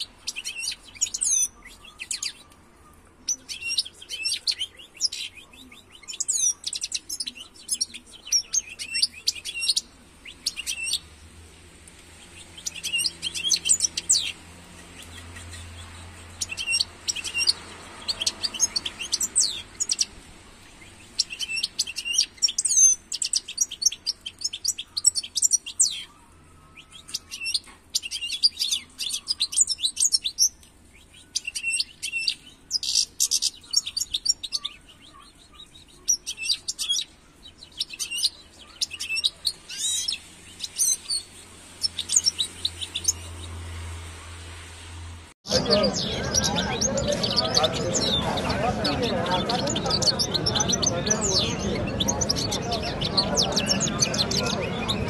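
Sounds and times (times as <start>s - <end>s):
goldfinch twittering song: 0.0s - 11.1s, 12.2s - 43.8s.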